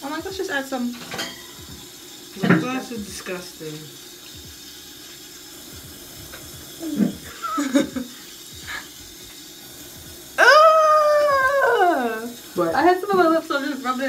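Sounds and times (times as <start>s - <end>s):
young woman laughing: 6.8s - 9.0s
high-pitched cry: 10.4s - 12.3s.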